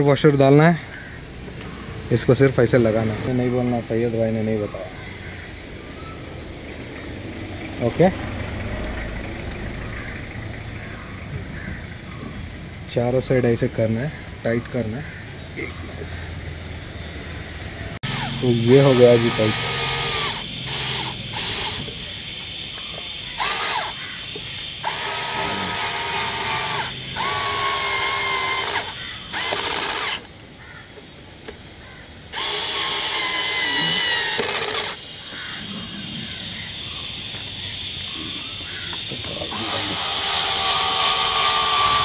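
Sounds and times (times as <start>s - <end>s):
power drill whining: 18.0s - 22.1s, 23.4s - 24.0s, 24.8s - 30.3s, 32.3s - 35.1s, 38.9s - 42.0s.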